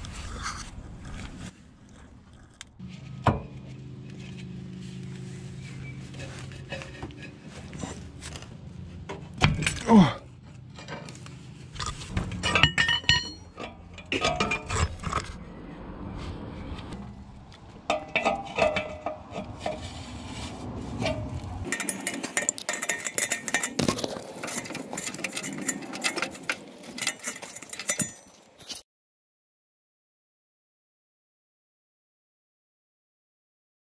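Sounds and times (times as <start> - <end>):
tools clinking on exhaust pipe: 9.1 - 11.4, 12.2 - 14.8, 17.9 - 19.8, 21.0 - 28.8.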